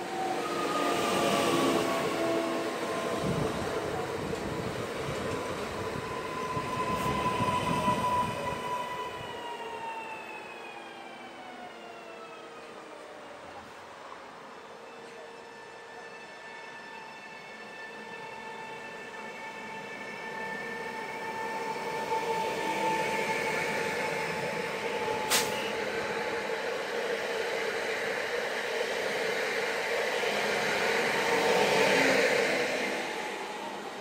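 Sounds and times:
train wheel and rail noise: 0.0 - 34.0
train motor whine: 14.9 - 34.0.

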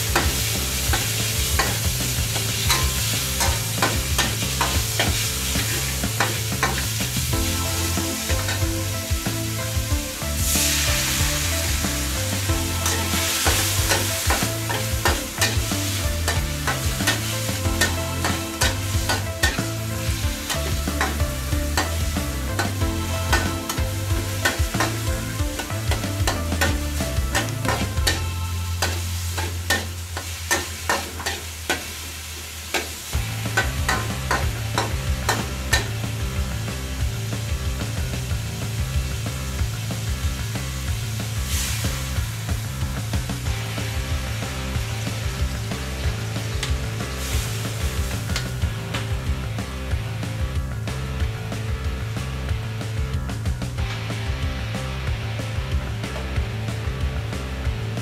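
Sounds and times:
oil sizzling: 0.0 - 58.0
metal spatula scraping a wok: 0.2 - 7.2, 12.8 - 22.0, 25.6 - 32.0.

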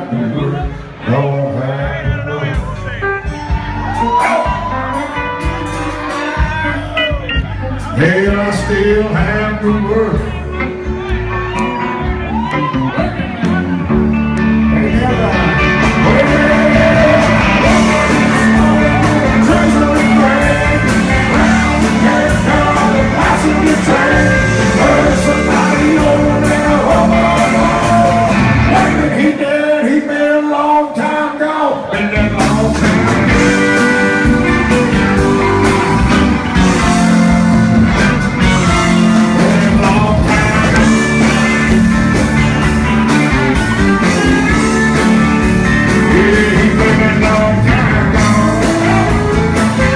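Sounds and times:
man singing: 0.0 - 3.3, 7.8 - 10.7, 12.9 - 35.4, 38.4 - 41.9, 43.7 - 49.9
live country band playing: 0.0 - 49.9
pedal steel guitar: 32.7 - 49.9.

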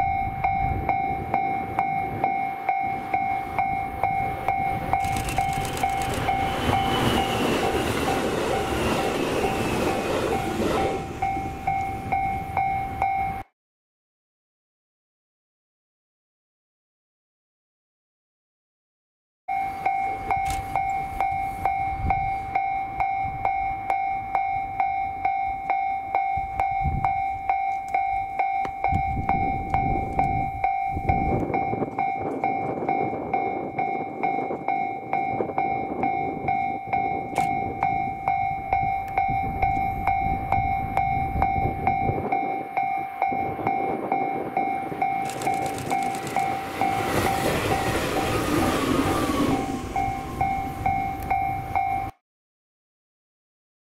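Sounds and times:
level crossing warning bell: 0.0 - 13.5, 19.5 - 52.2
train running past: 0.4 - 13.2, 39.1 - 52.1.

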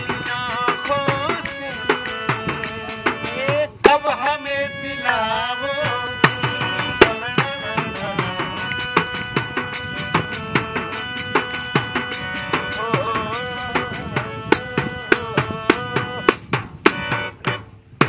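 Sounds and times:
person singing: 0.0 - 9.2, 12.7 - 16.3
harmonium playing chords: 0.0 - 18.0.

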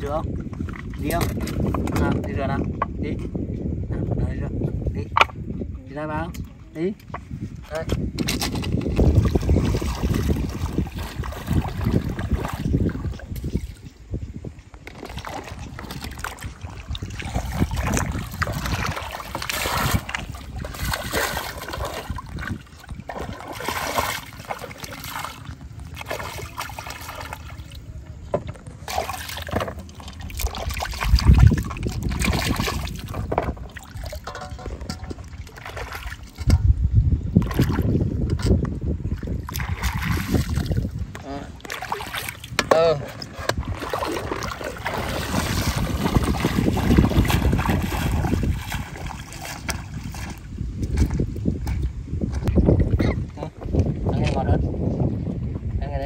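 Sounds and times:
water splashing as fruit is rinsed: 8.5 - 13.8, 14.8 - 27.8, 28.8 - 36.4, 39.1 - 51.8
river running: 14.9 - 31.1.

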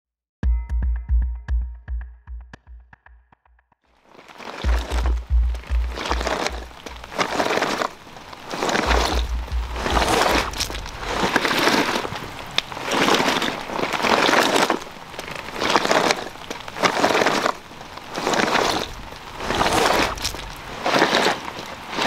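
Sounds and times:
bag dragged over gravel: 4.0 - 22.0.

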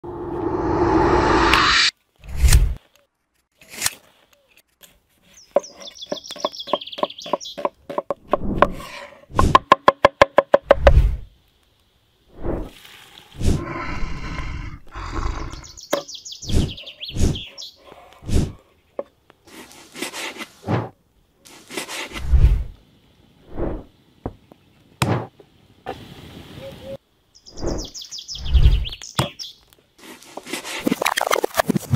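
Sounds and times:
birds chirping: 5.3 - 7.8, 15.0 - 19.1, 26.6 - 29.6
onions frying: 12.7 - 13.6.

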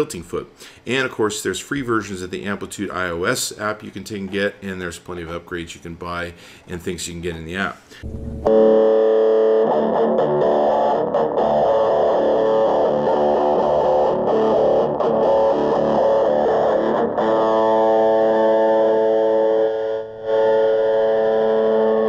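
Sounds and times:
electric guitar through small amp: 8.0 - 22.0.

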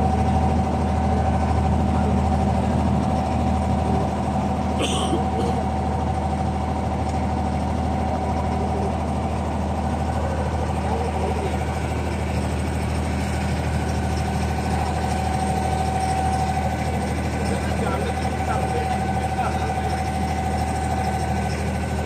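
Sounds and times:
boat diesel engine humming: 0.0 - 22.0.

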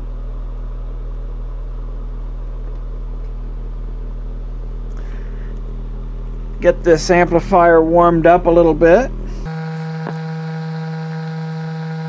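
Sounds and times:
deep low sine tone hum: 0.0 - 12.0.

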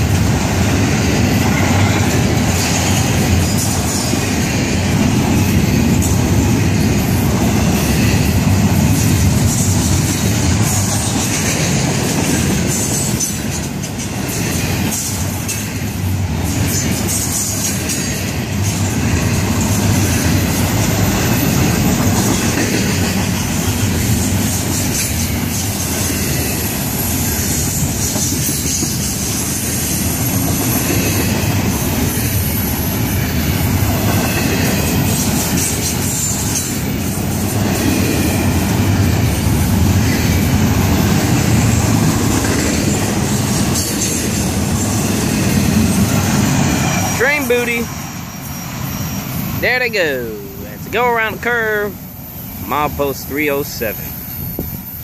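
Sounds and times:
train wheels rumbling on rail: 0.0 - 55.0
clicking over rail joints: 7.4 - 26.7.

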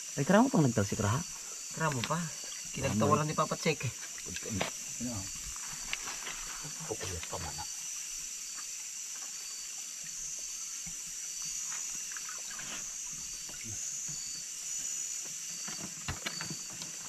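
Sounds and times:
night insects chorus: 0.0 - 17.0
stream trickling among rocks: 1.4 - 14.4
light water splashing: 1.7 - 14.3.

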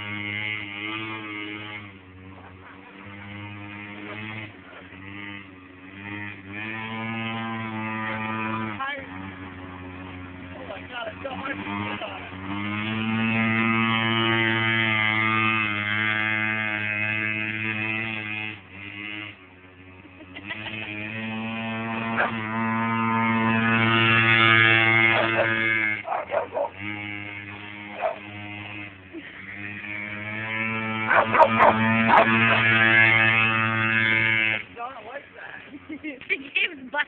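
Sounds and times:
small engine buzzing: 0.0 - 37.0.

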